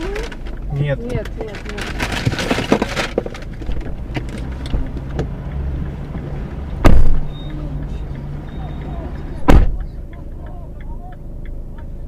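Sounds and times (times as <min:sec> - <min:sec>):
car engine hum: 0:00.0 - 0:12.0
rustling: 0:01.2 - 0:05.0
loud short thump: 0:06.8 - 0:07.3, 0:09.4 - 0:09.8.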